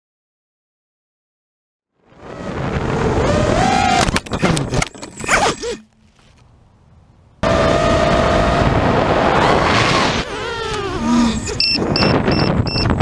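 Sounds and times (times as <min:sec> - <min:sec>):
high drone motor whine: 0:07.4 - 0:12.6.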